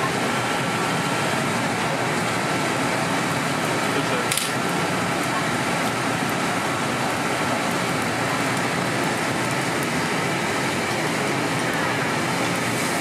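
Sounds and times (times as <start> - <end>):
eggs sizzling in oil: 0.2 - 13.0.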